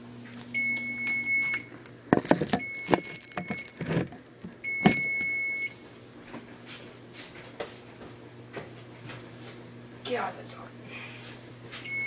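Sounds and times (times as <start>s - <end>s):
oven timer beeping: 0.5s - 1.7s, 2.6s - 3.7s, 4.6s - 5.8s.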